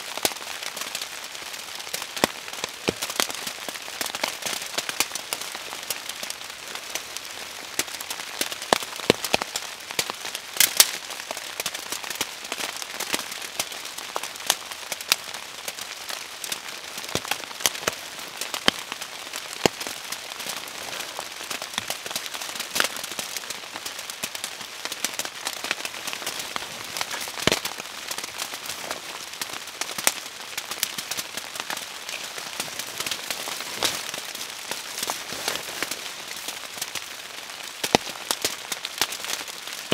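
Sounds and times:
raindrops ticking on surfaces: 0.0 - 39.9
steady rain hiss: 0.0 - 39.9.

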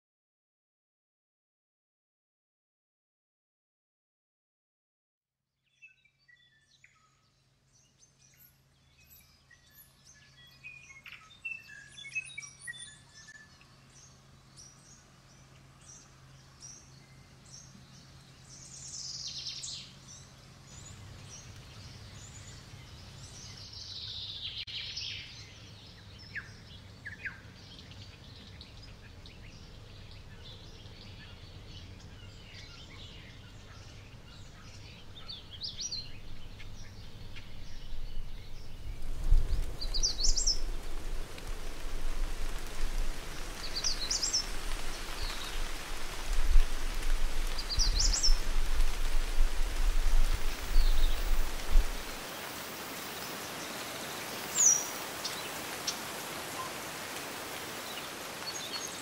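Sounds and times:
background hiss: 7.3 - 59.0
birds chirping and calling: 42.6 - 49.0.

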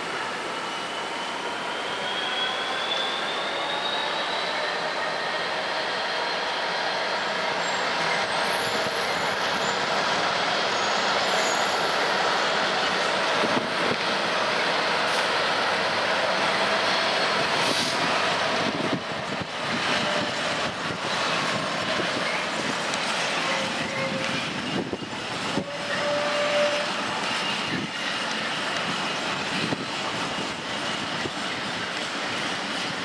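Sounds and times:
diesel locomotive engines running: 0.0 - 33.0
wheel squeals: 0.7 - 10.0, 10.7 - 13.6, 21.8 - 29.7.

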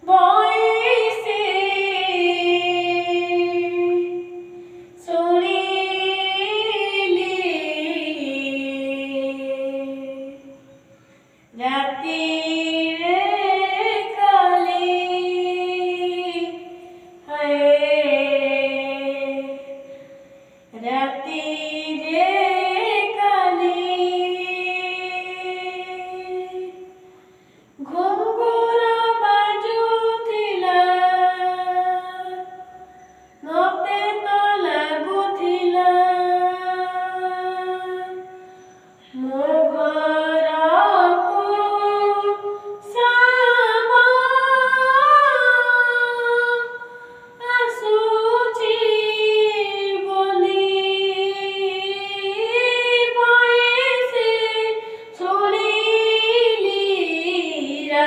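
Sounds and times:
boy singing: 0.0 - 10.6, 39.1 - 58.0.

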